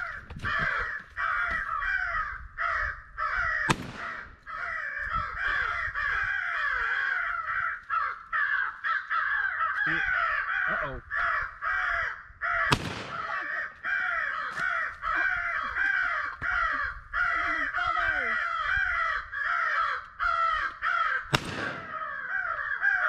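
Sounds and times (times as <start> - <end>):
crows cawing: 0.0 - 23.0
shotgun blasts: 3.7 - 4.3, 12.7 - 13.5, 21.3 - 22.2.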